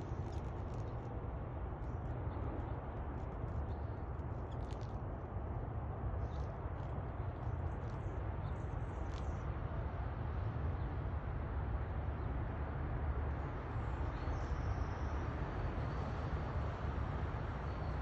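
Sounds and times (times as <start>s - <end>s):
low outdoor rumble: 0.0s - 18.0s.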